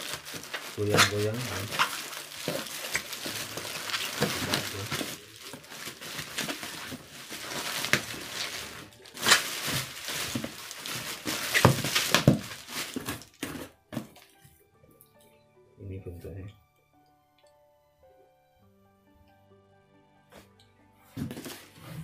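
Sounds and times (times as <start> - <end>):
bubble wrap rustling and crackling: 0.0 - 14.4, 21.2 - 22.0.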